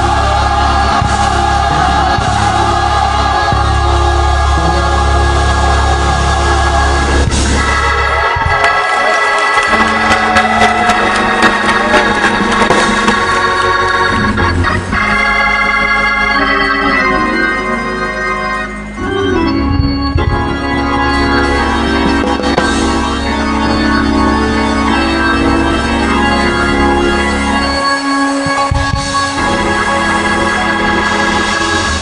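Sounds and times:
church organ chords: 0.0s - 32.0s
organ bass note: 0.0s - 32.0s.

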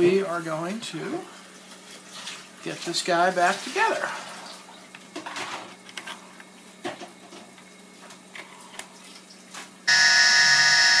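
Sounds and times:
sustained electronic chord: 9.9s - 11.0s.

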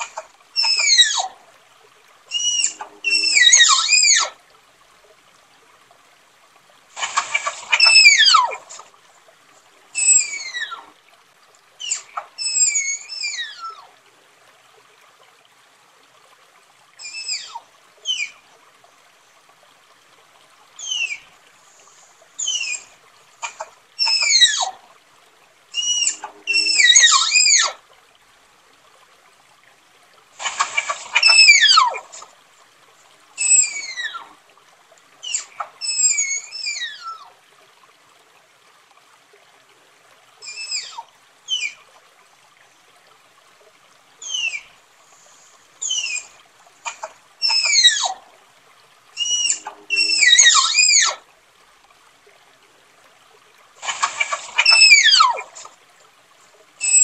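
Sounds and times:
tapir shrill whistles: 25.8s - 27.7s, 31.2s - 31.9s, 49.2s - 51.2s, 54.6s - 55.4s.

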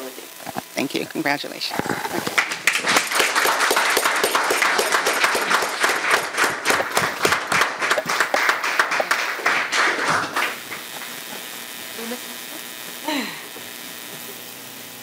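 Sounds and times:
audience applauding: 2.1s - 11.5s.

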